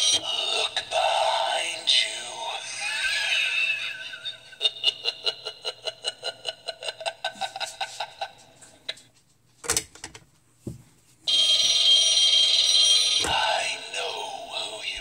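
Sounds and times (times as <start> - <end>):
loud electronic phone ring: 11.3 - 13.8.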